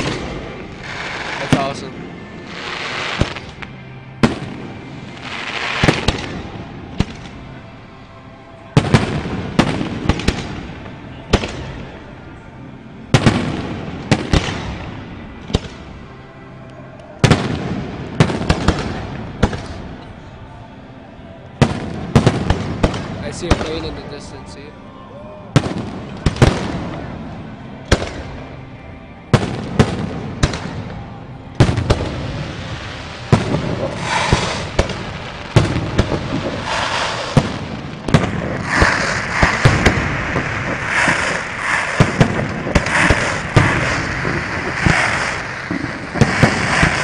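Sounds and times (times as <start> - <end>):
continuous fireworks din: 0.0 - 47.0
firework shells bursting: 33.3 - 47.0.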